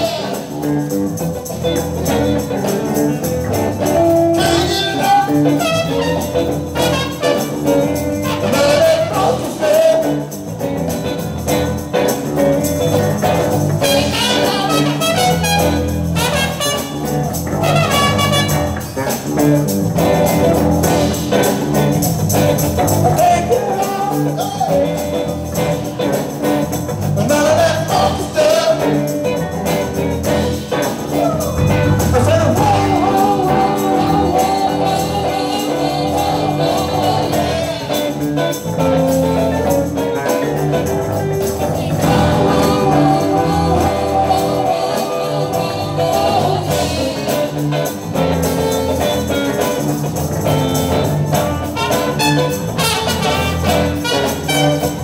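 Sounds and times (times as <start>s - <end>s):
person singing: 0.0s - 0.9s, 3.6s - 10.7s, 23.0s - 26.2s, 27.2s - 38.6s, 39.2s - 49.0s
drums: 0.0s - 55.0s
keyboard: 0.0s - 55.0s
shaken tambourine: 0.0s - 55.0s.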